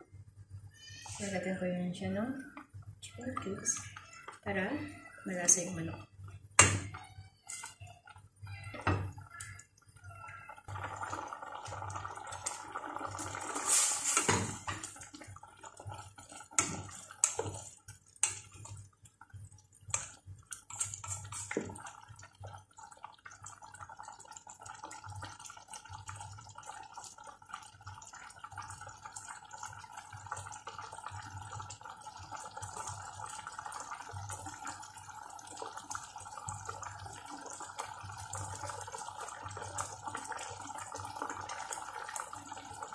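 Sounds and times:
liquid simmering and bubbling in pot: 0:00.0 - 0:42.9
spatula stirring and knocking pot: 0:14.1 - 0:15.0, 0:15.7 - 0:18.8.

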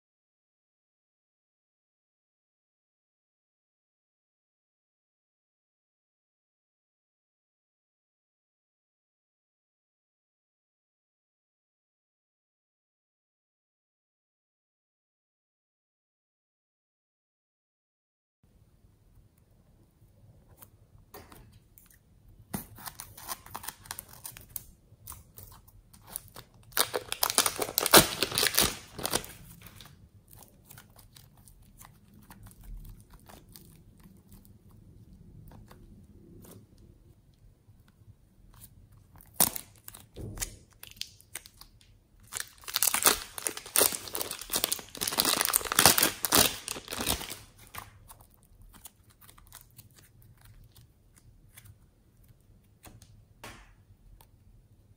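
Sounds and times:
slime squishing and crackling: 0:22.7 - 0:36.8, 0:38.5 - 0:53.0
plastic bag crinkling: 0:25.3 - 0:34.4, 0:39.2 - 0:50.8.

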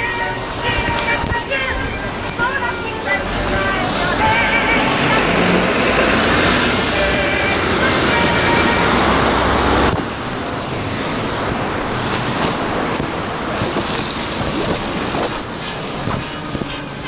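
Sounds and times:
deep traffic rumble: 0:00.0 - 0:17.0
tyres hissing on wet road: 0:00.0 - 0:17.0.

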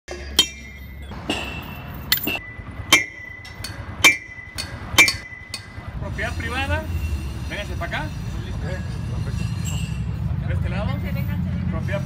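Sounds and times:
sharp metallic clinks ringing: 0:00.1 - 0:06.0.

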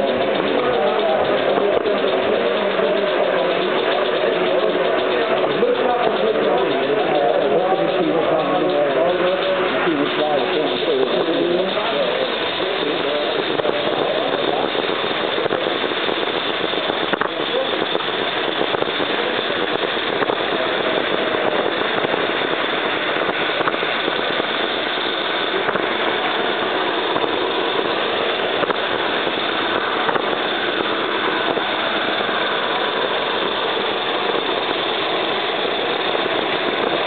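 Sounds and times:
model train wheels rattling on rails: 0:00.0 - 0:37.0.

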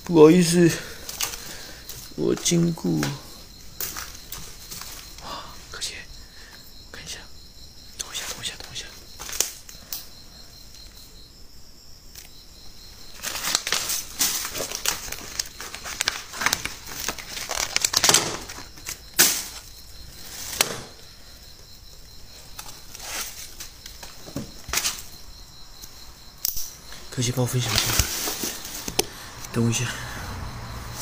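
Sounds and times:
faint high insect trill: 0:00.0 - 0:31.0
rustling and crackling handling noise: 0:00.9 - 0:05.2, 0:13.1 - 0:21.0, 0:22.3 - 0:25.1, 0:26.9 - 0:29.0.

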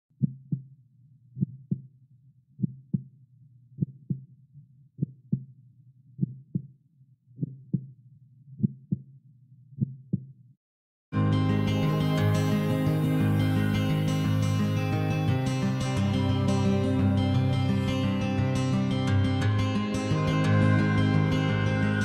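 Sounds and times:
slow heartbeat thumps: 0:00.2 - 0:00.7, 0:01.4 - 0:01.9, 0:02.6 - 0:03.1, 0:03.8 - 0:04.3, 0:06.2 - 0:06.8, 0:07.4 - 0:08.0, 0:08.6 - 0:09.1, 0:09.8 - 0:10.4.

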